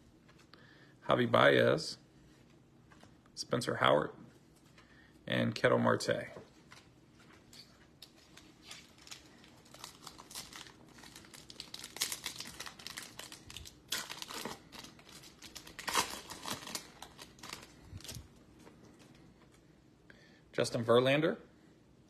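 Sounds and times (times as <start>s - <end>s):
foil wrapper crinkling and tearing: 8.0s - 18.3s.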